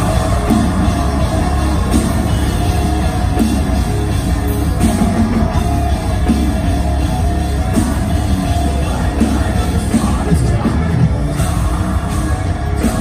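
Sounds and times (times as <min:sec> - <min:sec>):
bass guitar: 0:00.0 - 0:13.0
distorted electric guitars: 0:00.0 - 0:13.0
drum kit: 0:00.0 - 0:13.0.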